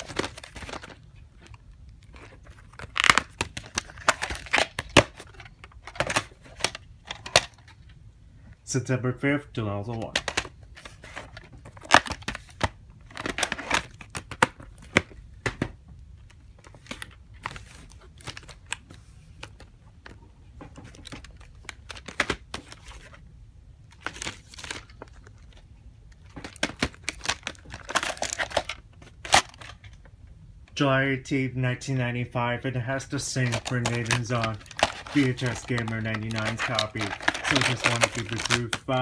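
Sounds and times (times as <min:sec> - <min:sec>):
plastic cases clicking and knocking: 0:02.2 - 0:07.8, 0:10.0 - 0:15.8, 0:26.2 - 0:30.1, 0:33.4 - 0:38.9.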